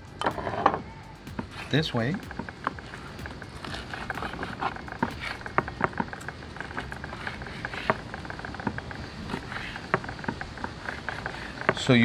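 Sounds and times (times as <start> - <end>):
knife slicing fish on wooden board: 2.3 - 11.8.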